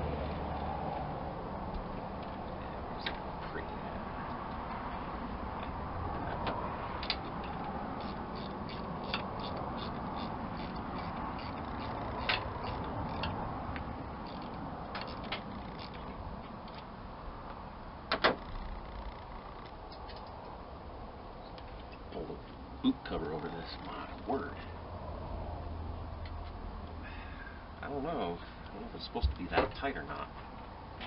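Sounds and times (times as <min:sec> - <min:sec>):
hand tool clicking on metal fittings: 0:07.0 - 0:13.4.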